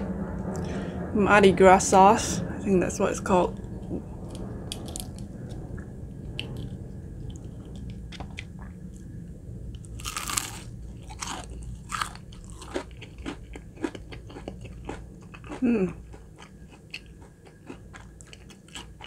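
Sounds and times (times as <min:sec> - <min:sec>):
chewing crispy fried chicken: 0:09.9 - 0:19.0.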